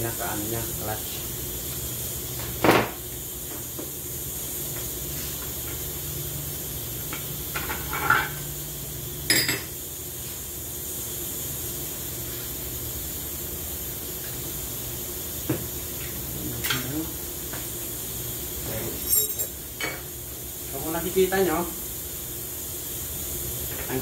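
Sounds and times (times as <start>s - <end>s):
steady hiss: 0.0s - 24.0s
metal clinks with ring: 19.0s - 19.6s.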